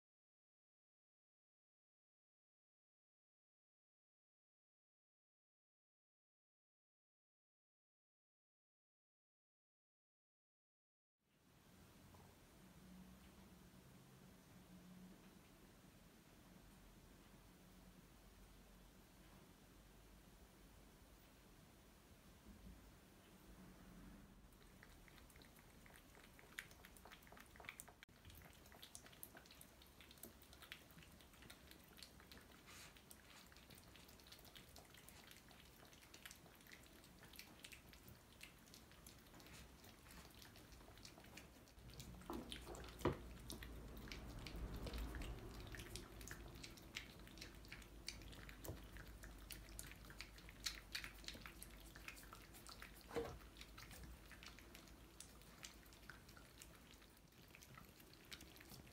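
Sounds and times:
cats licking and chewing: 0:24.4 - 0:58.9.

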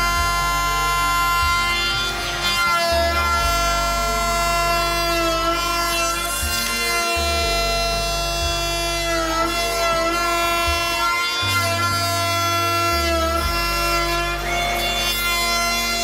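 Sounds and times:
instrumental background music: 0:00.0 - 0:16.0.

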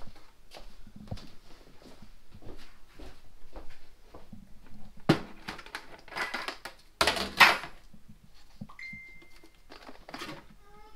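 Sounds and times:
plastic containers clattering: 0:05.0 - 0:07.9, 0:09.1 - 0:10.6
short steady high tone: 0:08.7 - 0:09.5.

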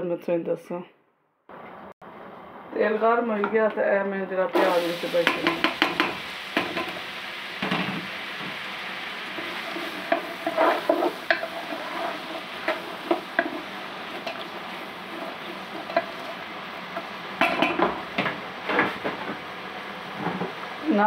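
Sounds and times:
onions sizzling in hot oil: 0:04.5 - 0:21.0
spoon scraping a pan: 0:05.2 - 0:19.1.

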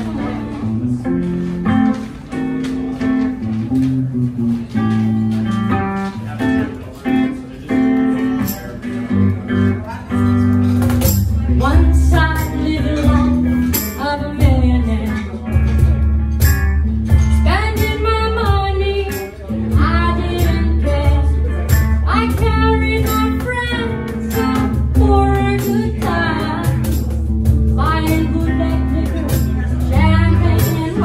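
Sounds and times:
woman singing: 0:00.0 - 0:00.8, 0:11.6 - 0:15.3, 0:17.3 - 0:27.0, 0:27.7 - 0:31.0
electric guitar playing blues: 0:00.0 - 0:31.0
cajon: 0:10.0 - 0:31.0.

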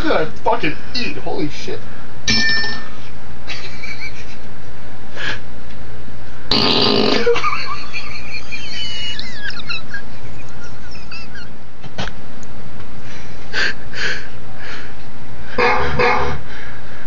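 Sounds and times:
man belching: 0:06.5 - 0:07.4.

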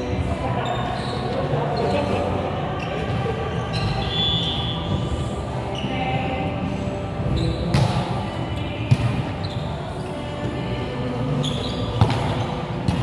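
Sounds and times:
players' voices and movement: 0:00.0 - 0:13.0
volleyball slaps: 0:08.9 - 0:09.3, 0:12.0 - 0:13.0.

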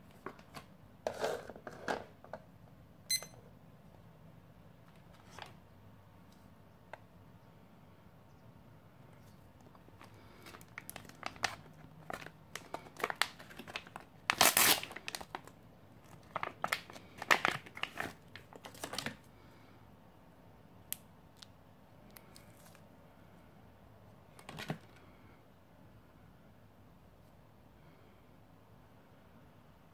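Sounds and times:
plastic pouch crinkling and tearing: 0:09.8 - 0:19.2, 0:22.3 - 0:22.8.

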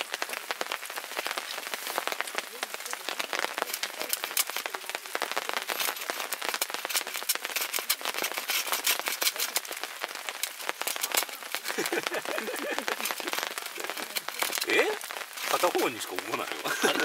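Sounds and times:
rain drops pattering: 0:00.0 - 0:17.0.

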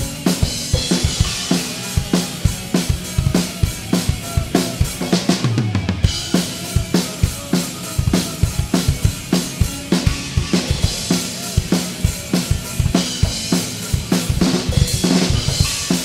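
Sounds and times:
drum kit beat: 0:00.0 - 0:16.0.

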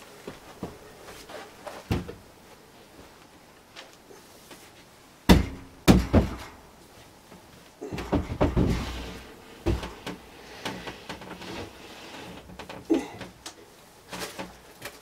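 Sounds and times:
bumps and scraping: 0:04.5 - 0:13.4
rudder thudding on wood: 0:05.3 - 0:06.6, 0:07.8 - 0:11.3.

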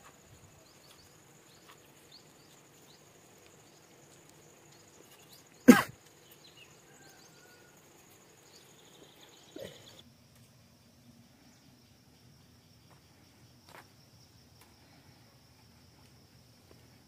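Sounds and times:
person coughing: 0:05.6 - 0:06.0.

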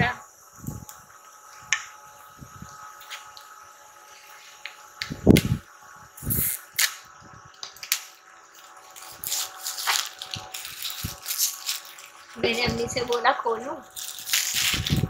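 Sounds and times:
plastic wrap crinkling and tearing: 0:07.7 - 0:15.0.

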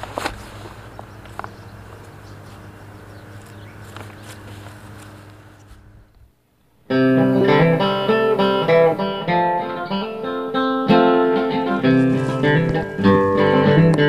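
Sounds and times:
faint outdoor ambience: 0:00.0 - 0:14.0
acoustic guitar music: 0:06.8 - 0:14.0.

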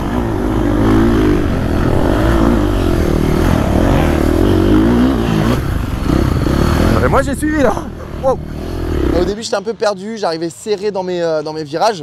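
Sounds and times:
motocross engine revving: 0:00.0 - 0:09.4.

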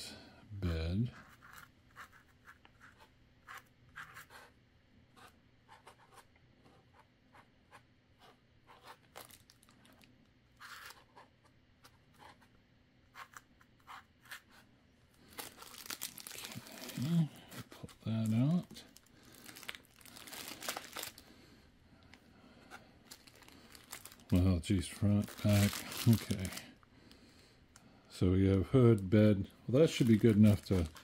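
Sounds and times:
marker scratching on styrofoam: 0:01.1 - 0:04.6, 0:13.1 - 0:14.7
plastic wrap crinkling: 0:09.1 - 0:10.1, 0:15.2 - 0:21.3, 0:23.0 - 0:26.7, 0:29.7 - 0:31.0.

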